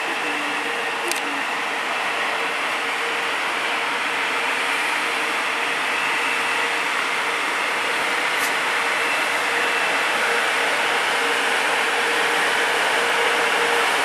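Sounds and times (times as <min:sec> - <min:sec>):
electric locomotive motors droning: 0:00.0 - 0:14.0.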